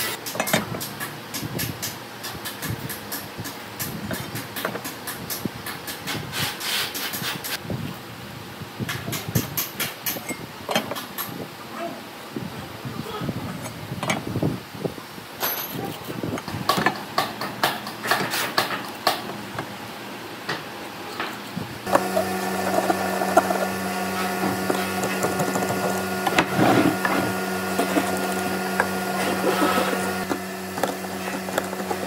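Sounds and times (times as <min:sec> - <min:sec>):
steady machine hum: 0:21.6 - 0:32.0.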